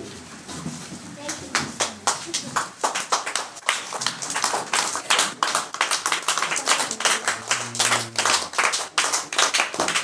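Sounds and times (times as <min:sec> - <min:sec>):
children clapping hands: 0:01.3 - 0:10.0
low voice holding a note: 0:07.1 - 0:08.6.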